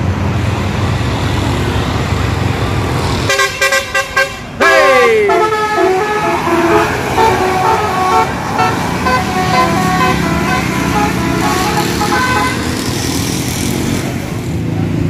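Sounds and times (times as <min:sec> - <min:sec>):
bus musical horn melody: 0:03.3 - 0:12.9.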